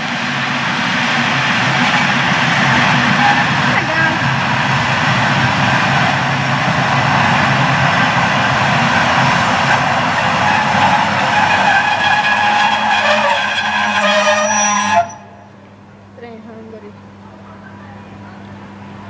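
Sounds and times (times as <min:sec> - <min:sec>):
electric locomotive rushing past: 0:00.0 - 0:15.8
high squealing tones: 0:10.2 - 0:15.4.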